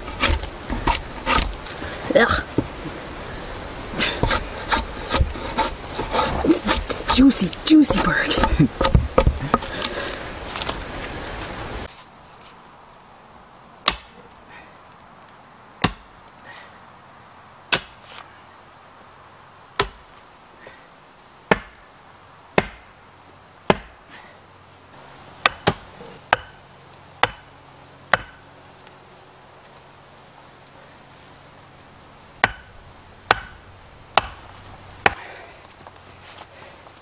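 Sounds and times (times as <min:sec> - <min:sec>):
axe chopping wood: 0:00.2 - 0:01.6, 0:07.8 - 0:09.7, 0:13.8 - 0:14.2, 0:15.8 - 0:16.2, 0:17.7 - 0:18.0, 0:19.8 - 0:20.1, 0:21.5 - 0:21.8, 0:22.6 - 0:22.9, 0:23.7 - 0:24.0, 0:25.4 - 0:26.6, 0:27.2 - 0:27.5, 0:28.1 - 0:28.4, 0:32.4 - 0:32.7, 0:33.3 - 0:33.6, 0:34.2 - 0:35.3.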